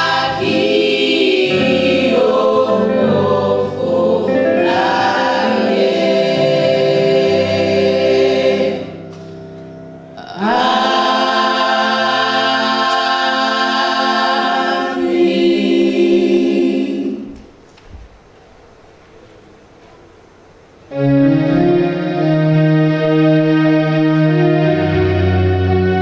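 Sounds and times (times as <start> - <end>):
women's choir singing: 0.0 - 9.1, 10.2 - 17.6.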